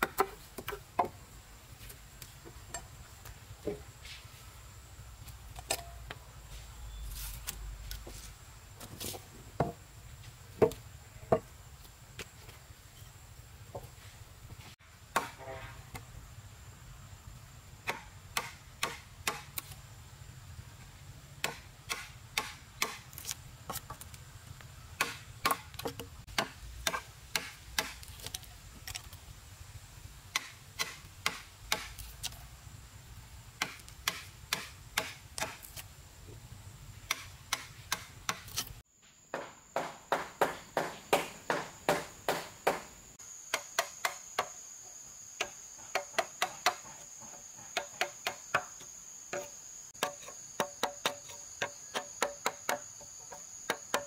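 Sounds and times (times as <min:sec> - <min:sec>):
insects chirring: 0:00.0 - 0:54.0
hammer striking a chisel: 0:33.6 - 0:35.6, 0:39.4 - 0:42.9, 0:47.8 - 0:54.0.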